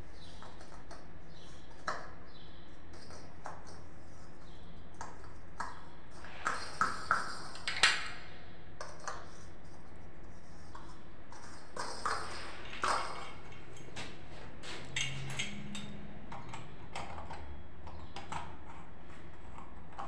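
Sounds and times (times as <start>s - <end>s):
metal cover plates clicking: 14.9s - 16.6s.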